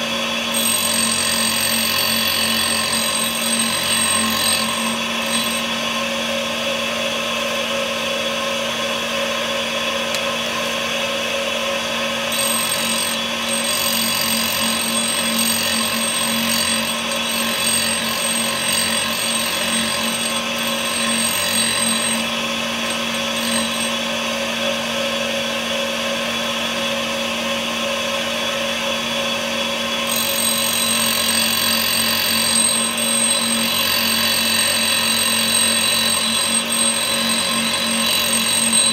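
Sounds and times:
tool grinder motor hum: 0:00.0 - 0:06.0, 0:12.2 - 0:24.2, 0:30.1 - 0:38.9.

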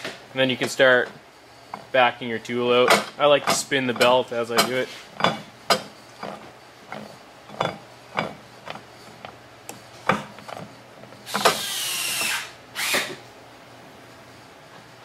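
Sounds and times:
metal rasping: 0:02.7 - 0:12.5.

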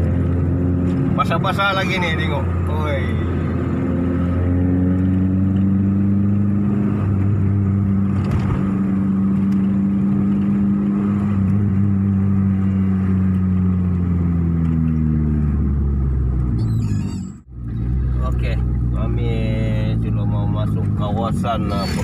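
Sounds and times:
car engine droning in cabin: 0:00.0 - 0:22.0.

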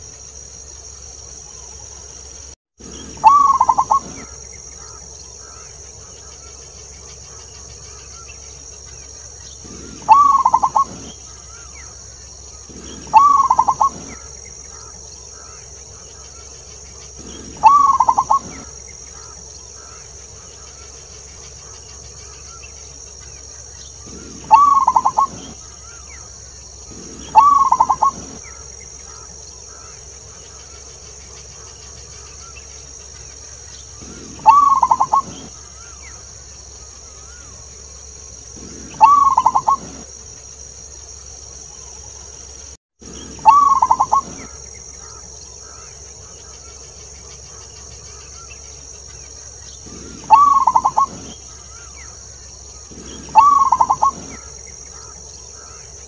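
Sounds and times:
steady high hiss: 0:00.0 - 0:56.0
dove cooing: 0:02.8 - 0:05.7, 0:09.6 - 0:11.8, 0:12.5 - 0:16.0, 0:17.1 - 0:20.0, 0:24.0 - 0:26.1, 0:26.9 - 0:29.9, 0:34.0 - 0:36.0, 0:38.5 - 0:40.1, 0:43.1 - 0:45.8, 0:49.8 - 0:51.9, 0:52.8 - 0:55.8.

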